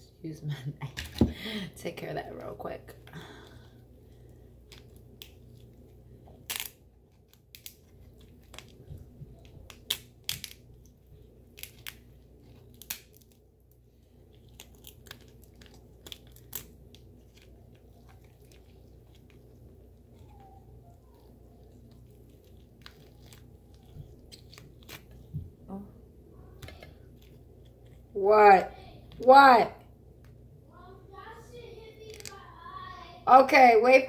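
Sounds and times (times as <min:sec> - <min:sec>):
steady low hum: 0:00.0 - 0:33.8
lobster shell cracking: 0:04.2 - 0:25.4, 0:32.1 - 0:32.4.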